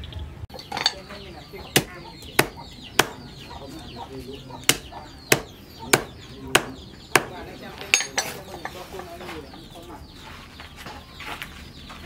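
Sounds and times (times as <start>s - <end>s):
hammer knocking on wood: 1.7s - 3.3s, 4.6s - 7.4s.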